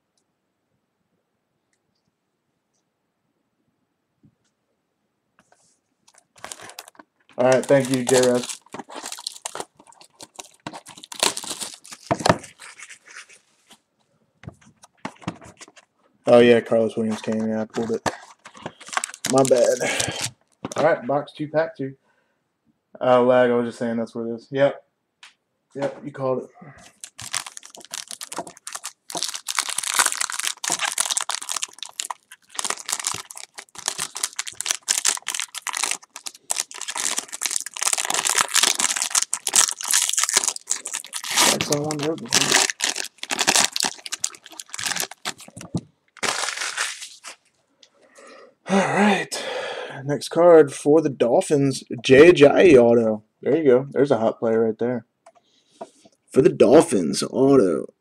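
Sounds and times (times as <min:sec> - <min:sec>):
plastic shrink wrap crinkling: 0:06.1 - 0:13.8, 0:17.0 - 0:20.8, 0:26.8 - 0:47.5.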